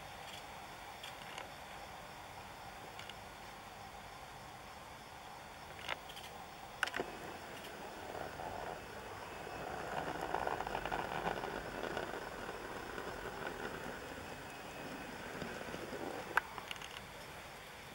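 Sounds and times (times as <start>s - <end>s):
steady background hum: 0.0s - 17.9s.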